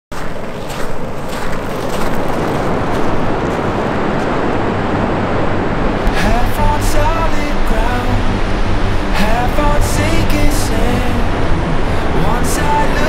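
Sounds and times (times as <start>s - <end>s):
wind: 0.1s - 13.0s
surf on a beach: 0.2s - 13.0s
music with low bass: 5.8s - 13.0s.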